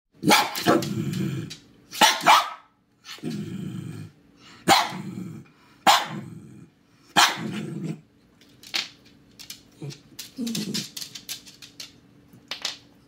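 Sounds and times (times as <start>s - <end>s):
dog barking: 0.2s - 0.8s, 2.0s - 2.8s, 4.6s - 5.0s, 5.8s - 6.2s, 7.2s - 7.6s
dog growling: 3.2s - 4.2s, 4.9s - 5.5s, 6.1s - 6.8s.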